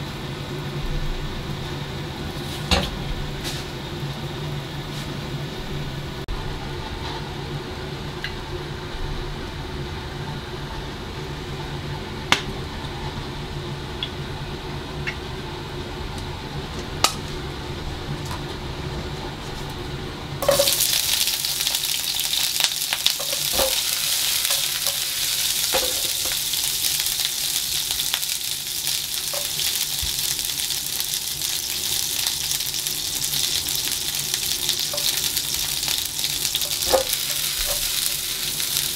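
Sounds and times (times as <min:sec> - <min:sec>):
garlic sizzling in oil: 0:20.4 - 0:38.9.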